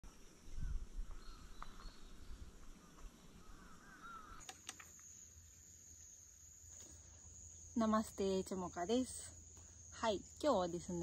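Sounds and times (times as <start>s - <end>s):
birds chirping: 0.6s - 4.6s
high-pitched insect trill: 3.5s - 11.0s.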